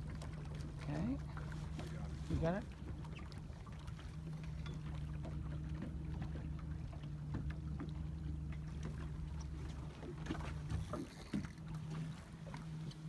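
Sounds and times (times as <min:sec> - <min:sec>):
motorboat engine idling: 0:00.0 - 0:13.0.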